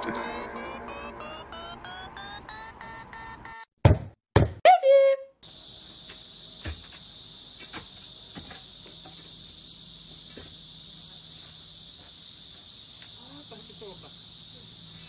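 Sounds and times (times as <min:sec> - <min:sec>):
high-pitched insect chorus: 0:05.4 - 0:15.0.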